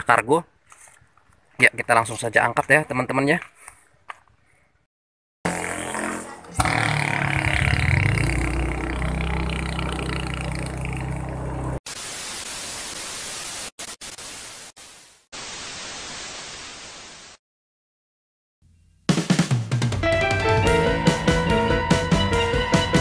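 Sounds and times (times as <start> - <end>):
motorcycle engine running: 5.5 - 11.8
static hiss: 11.9 - 17.4.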